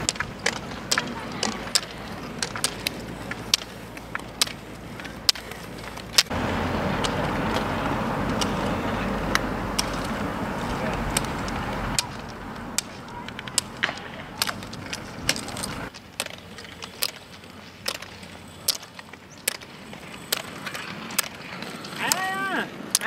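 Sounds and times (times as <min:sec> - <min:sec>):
pole tips clicking on asphalt: 0:00.0 - 0:23.0
roller-ski wheels humming on tarmac: 0:00.0 - 0:23.0.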